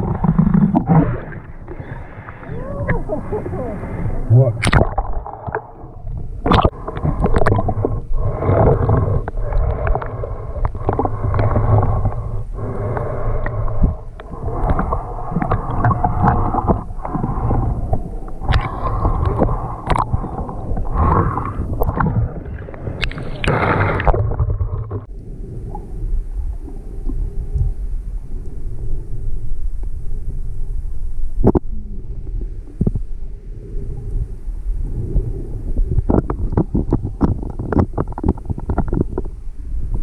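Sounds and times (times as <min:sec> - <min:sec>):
heavy low rumble: 0:00.0 - 0:40.0
muffled water sloshing: 0:00.0 - 0:40.0
knocks and splashes: 0:04.6 - 0:05.6.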